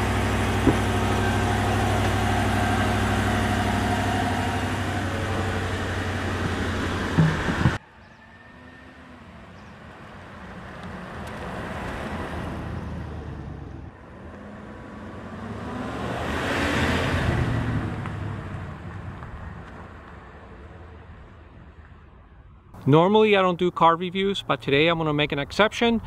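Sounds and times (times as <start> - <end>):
pickup truck driving past: 0.0 - 21.4
tyre noise: 6.1 - 7.8.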